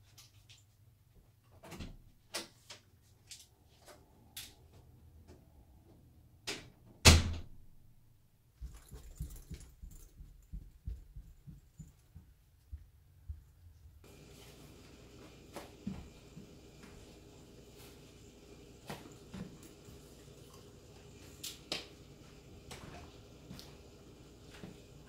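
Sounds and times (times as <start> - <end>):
footsteps on carpeted stairs: 8.6 - 18.1, 22.1 - 25.0.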